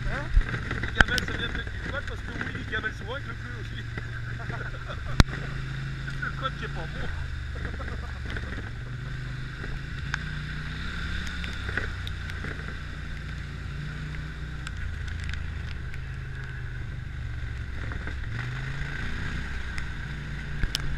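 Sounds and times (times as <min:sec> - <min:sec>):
quad bike engine running: 0:00.0 - 0:20.9.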